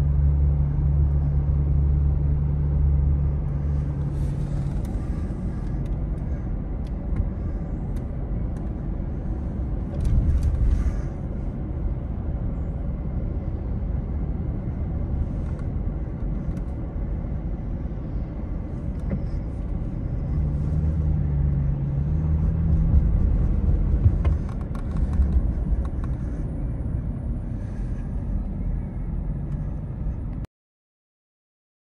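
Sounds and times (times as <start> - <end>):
city traffic rumble: 0.0 - 30.5.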